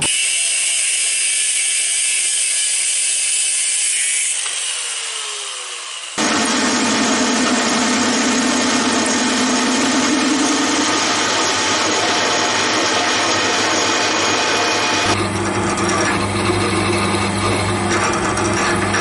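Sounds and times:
metal lathe whirring: 0.0 - 19.0
low hum: 6.2 - 15.3.

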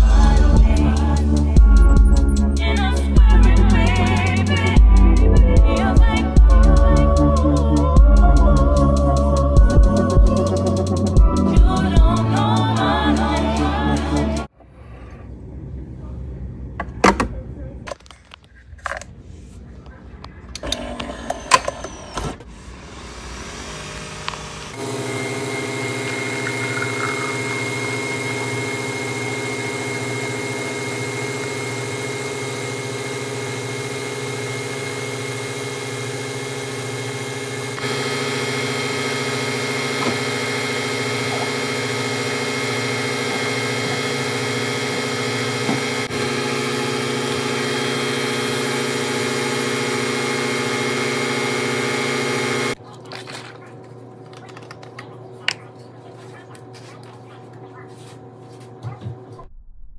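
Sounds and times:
coffee machine mechanical hum: 20.5 - 59.4.

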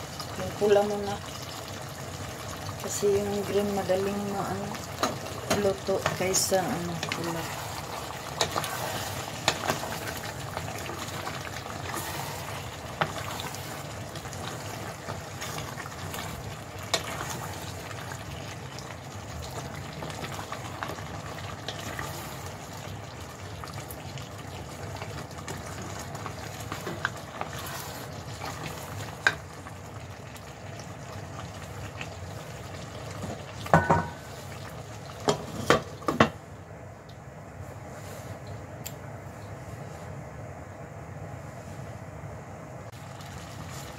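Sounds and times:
stew simmering in a pot: 0.0 - 38.6, 42.9 - 43.9
wooden spoon knocking a pot: 33.7 - 34.2.

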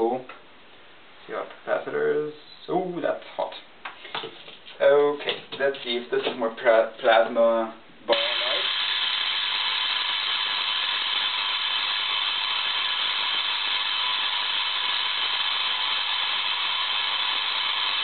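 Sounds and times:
tesla coil spark gap buzzing: 8.1 - 18.0.

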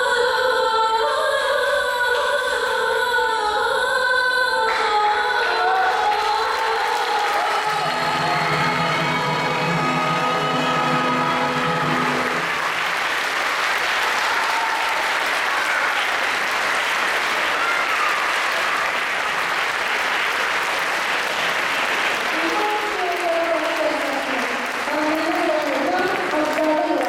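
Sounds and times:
audience applauding: 5.4 - 27.0
held musical chord: 7.7 - 12.7.

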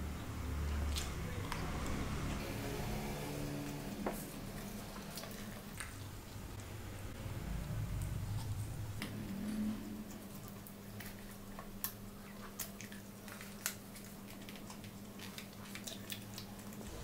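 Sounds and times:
low steady hum: 0.0 - 17.0
chewing and mouth sounds: 8.0 - 17.0.

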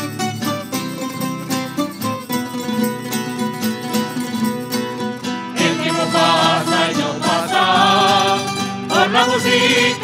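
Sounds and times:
plucked string instruments: 0.0 - 10.0.

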